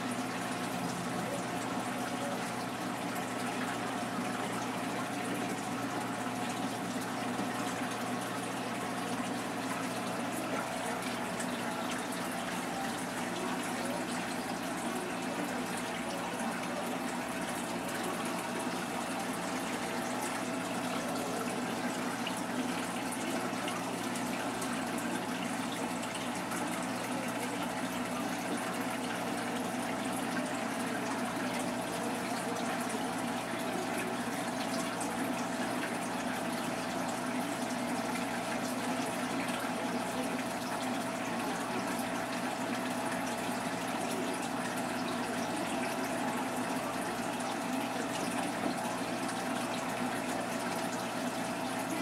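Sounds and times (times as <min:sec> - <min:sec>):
pump hum: 0:00.0 - 0:52.0
running water: 0:00.0 - 0:52.0.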